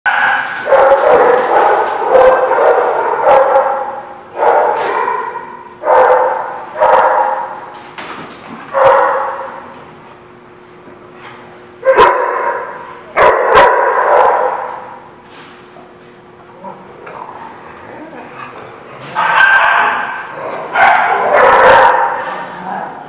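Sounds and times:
dog barking: 0:00.1 - 0:07.6, 0:08.7 - 0:09.5, 0:11.8 - 0:15.0, 0:19.1 - 0:22.4.

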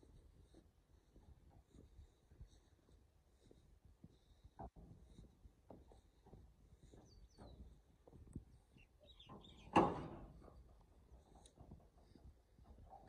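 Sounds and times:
faint bird chirps: 0:08.6 - 0:09.8.

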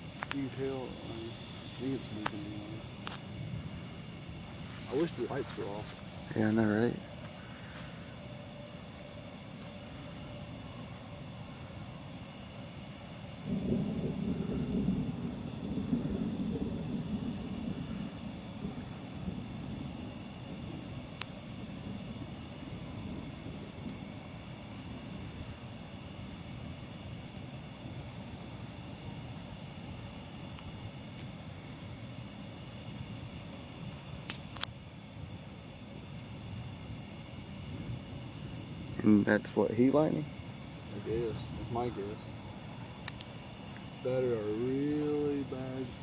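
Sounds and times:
distant thunder rumble: 0:00.0 - 0:12.1, 0:12.8 - 0:30.9, 0:37.2 - 0:46.0
night insects trilling: 0:00.0 - 0:46.0
faint clicks: 0:43.0 - 0:43.8.

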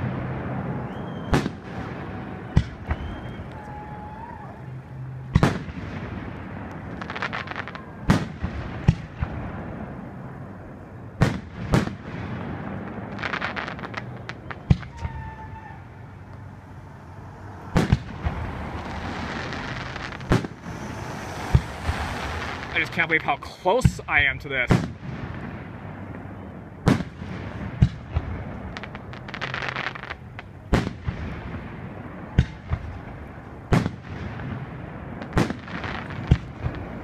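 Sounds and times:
fireworks bangs: 0:00.0 - 0:37.0
fireworks crackling: 0:00.0 - 0:37.0.

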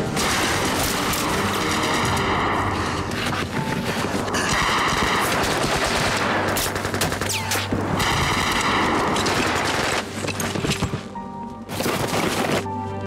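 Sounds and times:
machine-gun fire: 0:04.4 - 0:10.0.

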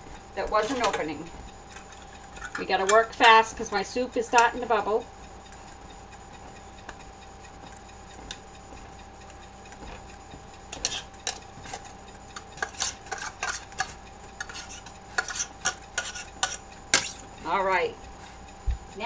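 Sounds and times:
utensil scraping metal pot: 0:01.7 - 0:03.5, 0:10.7 - 0:17.3.

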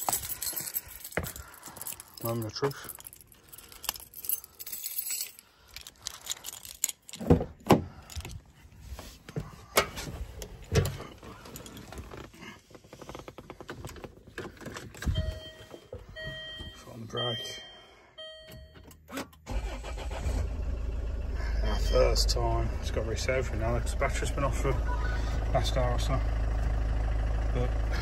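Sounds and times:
car keys jangling: 0:00.0 - 0:08.6, 0:10.3 - 0:12.1.

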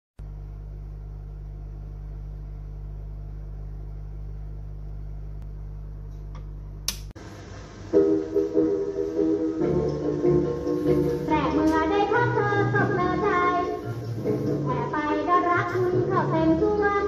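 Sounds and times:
amplifier mains hum: 0:00.2 - 0:17.0
record surface hiss: 0:00.2 - 0:17.0
band music from record: 0:07.9 - 0:17.0.

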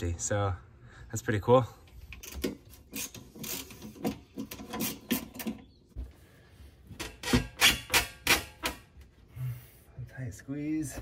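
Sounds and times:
screwdriver creaking out screws: 0:02.1 - 0:05.6.

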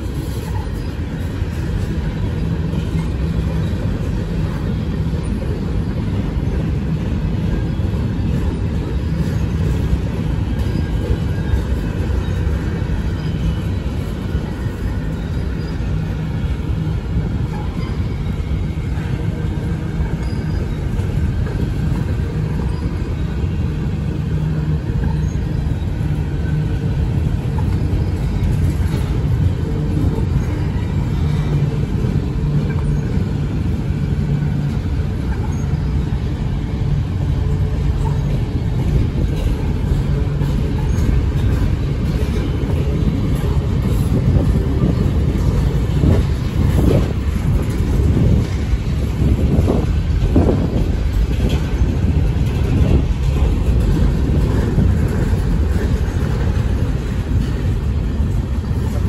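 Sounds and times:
train wheels rumbling on rails: 0:00.0 - 0:59.0
faint high wheel squeals: 0:07.3 - 0:47.0.

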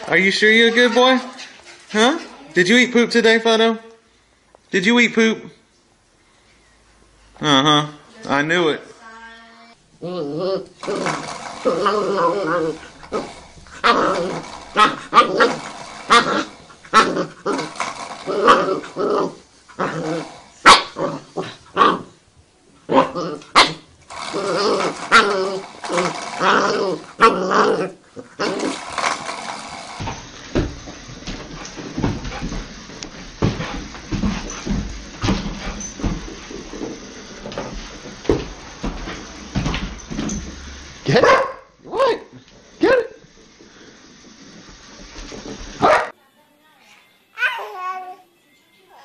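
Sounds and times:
puppy growling and yapping: 0:10.0 - 0:22.2, 0:22.9 - 0:30.0.

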